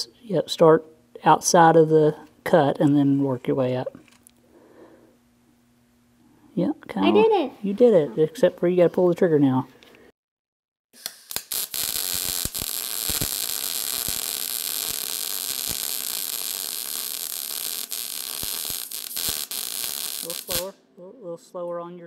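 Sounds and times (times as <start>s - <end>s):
sharp pops: 11.0s - 16.4s
welder arc crackling: 11.0s - 20.8s.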